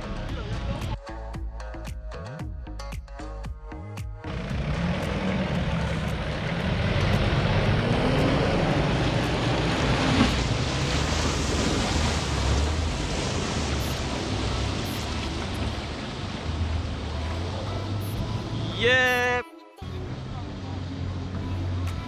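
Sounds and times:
off-road vehicle engine under load: 4.2 - 19.2, 19.8 - 22.0
loud steady rushing noise: 4.3 - 19.4.

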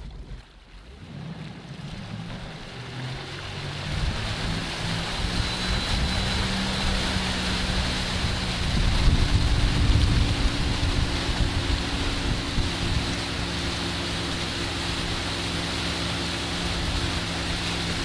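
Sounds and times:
motorboat engine under throttle: 0.0 - 18.0
water rushing and spraying: 0.0 - 18.0.

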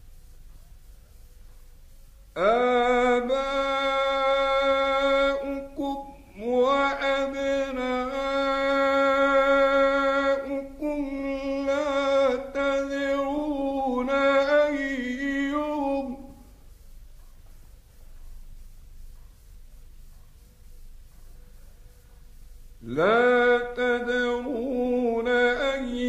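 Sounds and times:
man chanting recitation: 2.3 - 16.6, 22.8 - 26.0.

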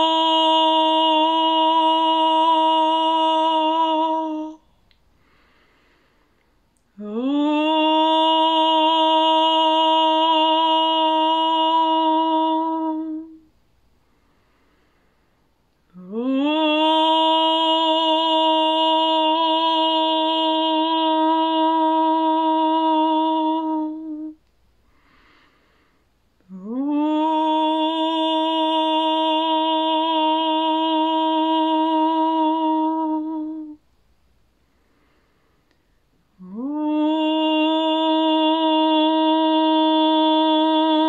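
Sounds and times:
woman singing long held tones: 0.0 - 34.0, 34.8 - 41.0
soft in-breath: 4.6 - 6.8, 13.9 - 15.7, 24.8 - 26.4, 34.5 - 36.3.

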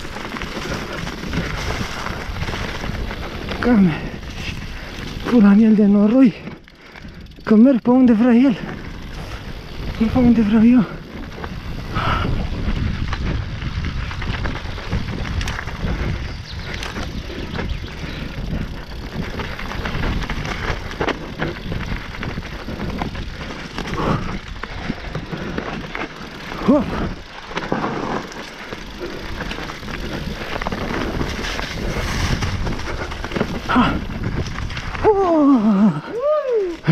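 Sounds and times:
tyre and wind rush: 0.0 - 7.5, 8.6 - 36.9
bike rattling and knocking: 0.0 - 36.9.

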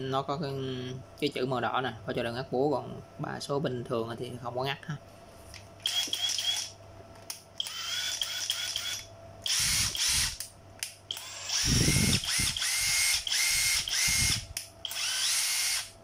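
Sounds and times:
impact driver motor whine: 5.8 - 6.7, 7.6 - 10.4, 11.1 - 16.0.

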